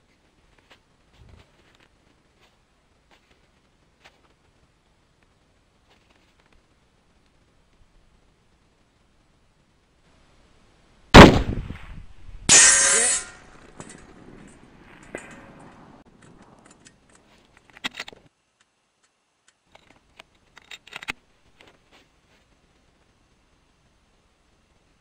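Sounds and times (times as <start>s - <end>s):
rifle shot: 11.2s - 13.2s
bullet ringing on steel target: 12.5s - 13.7s.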